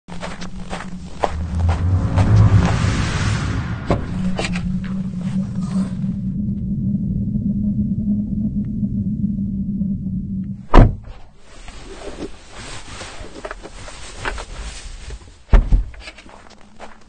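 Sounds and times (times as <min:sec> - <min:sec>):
low droning rumble: 0:00.1 - 0:11.3
heavy booming thud: 0:01.3 - 0:05.5, 0:10.7 - 0:11.1.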